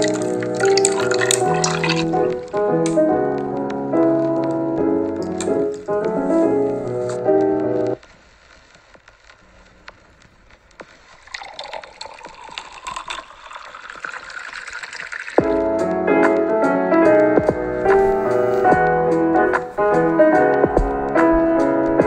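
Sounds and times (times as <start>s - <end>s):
gentle piano music: 0.0s - 8.0s, 15.4s - 22.0s
fabric rustling: 18.0s - 18.7s.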